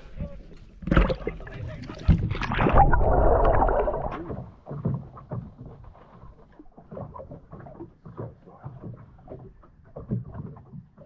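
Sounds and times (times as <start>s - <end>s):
underwater rush of bubbles: 0.9s - 4.5s.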